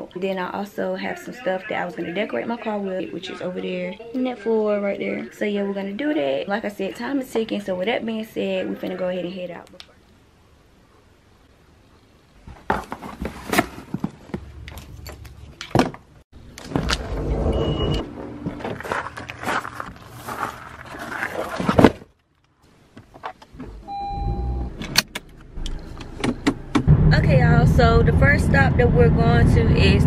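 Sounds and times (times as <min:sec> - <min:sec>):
short electronic beep: 0:17.3 - 0:18.1, 0:23.8 - 0:24.7
footsteps: 0:17.9 - 0:22.1.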